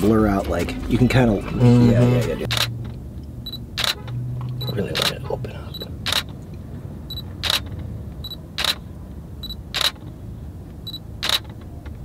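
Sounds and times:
camera shutter clicks: 0:02.5 - 0:02.7, 0:05.0 - 0:05.2, 0:06.1 - 0:06.3, 0:07.4 - 0:07.7, 0:08.6 - 0:08.8, 0:09.8 - 0:10.0, 0:11.2 - 0:11.5.

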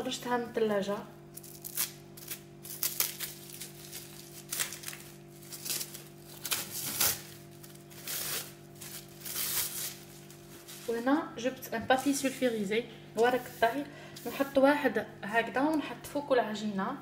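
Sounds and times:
steady low hum: 0:00.0 - 0:17.0
cling film crinkling: 0:01.4 - 0:11.0.

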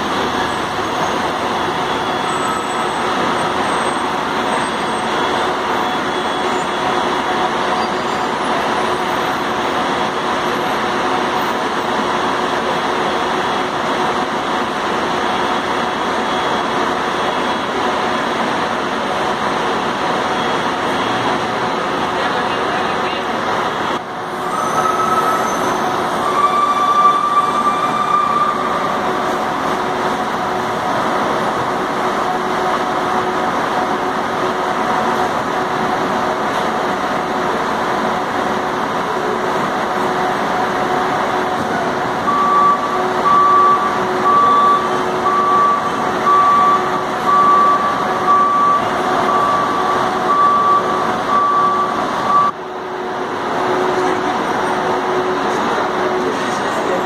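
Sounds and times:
reversing alarm beeping: 0:00.0 - 0:10.7, 0:15.1 - 0:18.4, 0:19.9 - 0:21.6, 0:23.9 - 0:31.6, 0:41.4 - 0:54.2
bus engines humming: 0:00.0 - 0:57.0.

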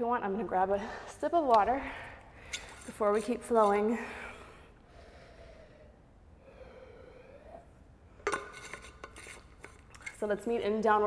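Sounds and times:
swallowing and breathing: 0:04.0 - 0:08.2.

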